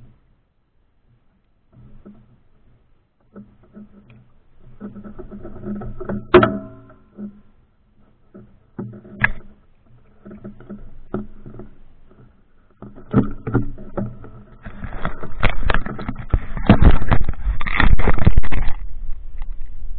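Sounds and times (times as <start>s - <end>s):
rubbing on microphone: 8.0s - 19.7s.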